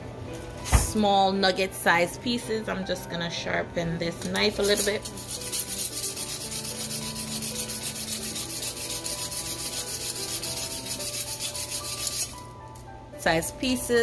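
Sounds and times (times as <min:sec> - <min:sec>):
knife scraping through sharpener: 0:04.6 - 0:12.4.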